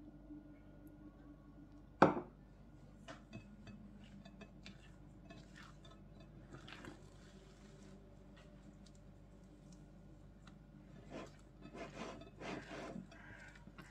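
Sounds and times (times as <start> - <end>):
wet dough squelching: 4.0 - 13.9.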